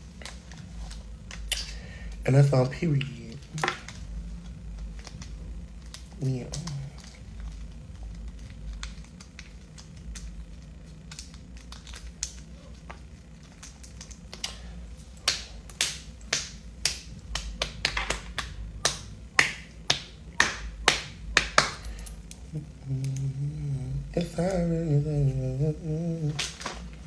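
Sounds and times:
hands clicking and tapping: 15.2 - 22.4.

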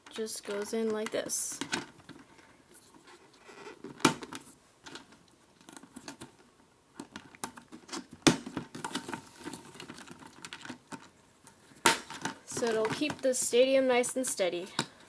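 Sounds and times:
plastic parts clicking and knocking: 0.0 - 2.3, 3.8 - 11.2, 11.8 - 13.4.

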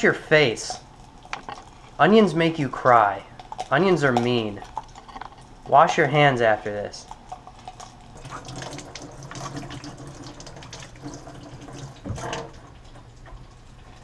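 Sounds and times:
hands washing under water: 8.1 - 14.0
tap running into metal sink: 8.3 - 12.7.

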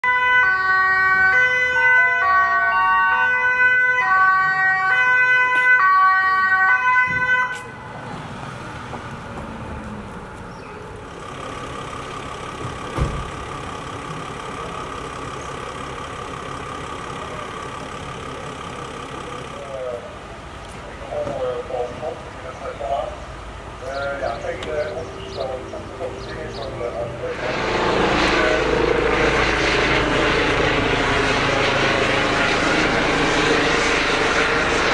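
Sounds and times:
ambulance two-tone siren: 0.0 - 8.0
engine hum: 7.1 - 34.9
short thump: 12.6 - 13.4.

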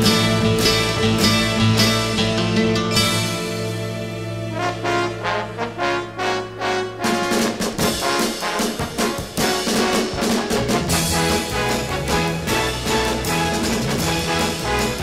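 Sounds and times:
brass band music with drums: 0.0 - 15.0.

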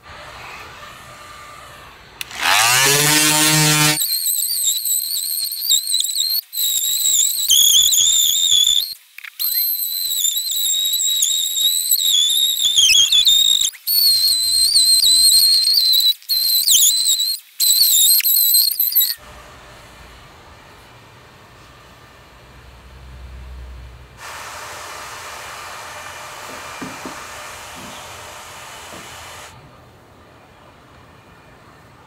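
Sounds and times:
power tool motor whining: 0.0 - 15.3.

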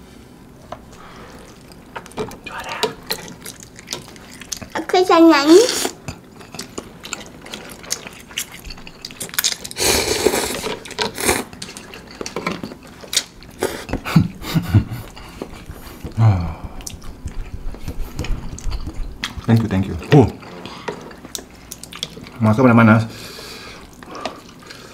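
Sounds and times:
chewing: 1.0 - 4.9, 5.7 - 22.4, 23.6 - 24.9
slurping noodles: 9.6 - 12.0
person humming mm: 16.1 - 17.0.

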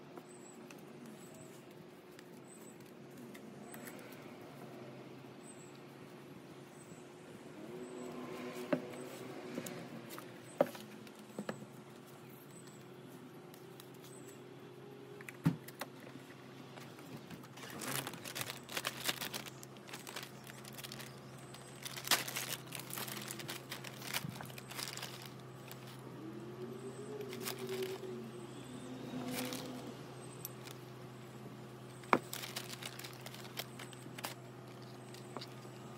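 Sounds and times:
hands rustling potting soil: 17.5 - 26.1.

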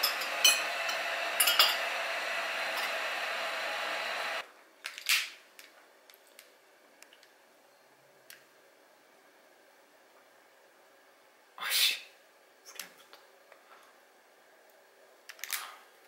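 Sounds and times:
steady whirring noise: 0.0 - 4.5
utility lighter hiss: 0.1 - 4.4.

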